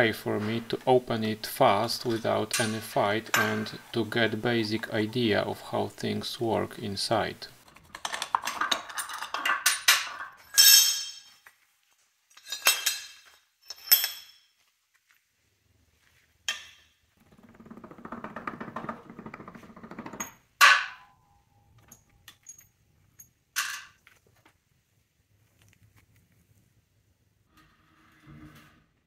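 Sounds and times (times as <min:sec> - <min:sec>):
metal parts clanking on steel: 0:02.0 - 0:03.8, 0:07.9 - 0:11.4, 0:12.3 - 0:14.5, 0:16.5 - 0:16.9
rough metal scraping: 0:27.5 - 0:29.0.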